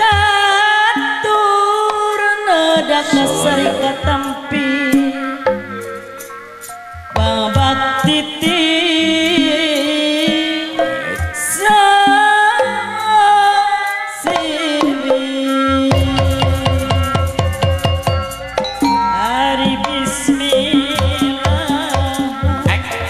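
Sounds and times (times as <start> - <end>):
woman singing with vibrato: 0.0 - 5.4, 7.2 - 17.3, 19.0 - 23.0
gamelan: 14.3 - 23.0
hand drums: 14.3 - 23.0.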